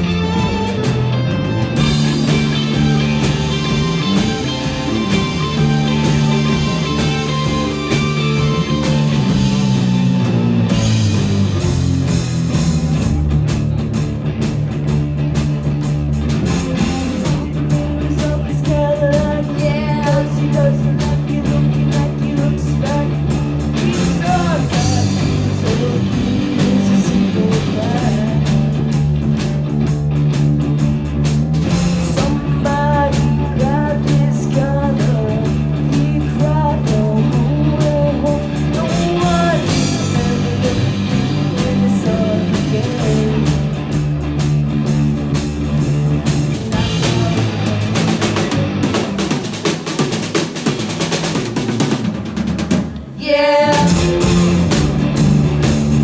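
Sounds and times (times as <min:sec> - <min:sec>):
live rock band playing: 0:00.0 - 0:56.0
woman singing: 0:16.5 - 0:28.6, 0:32.0 - 0:43.7, 0:46.7 - 0:48.4, 0:53.2 - 0:54.4.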